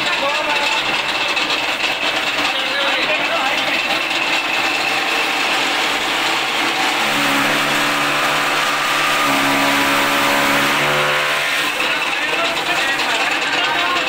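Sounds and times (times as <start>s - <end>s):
chaff cutter whirring and chopping: 3.8s - 14.0s
low droning hum: 6.0s - 13.2s.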